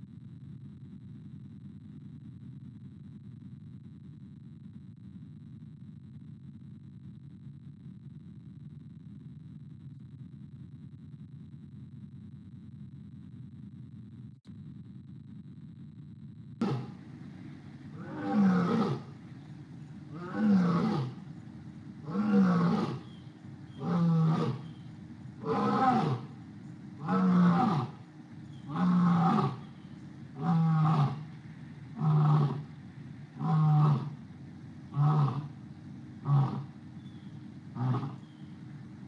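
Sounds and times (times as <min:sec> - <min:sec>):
lion roaring: 0:16.6 - 0:17.0, 0:17.9 - 0:19.2, 0:20.1 - 0:21.2, 0:22.0 - 0:23.1, 0:23.7 - 0:24.7, 0:25.4 - 0:26.4, 0:27.0 - 0:28.0, 0:28.6 - 0:29.6, 0:30.3 - 0:31.3, 0:31.9 - 0:32.7, 0:33.4 - 0:34.2, 0:34.9 - 0:35.6, 0:36.2 - 0:36.8, 0:37.7 - 0:38.3.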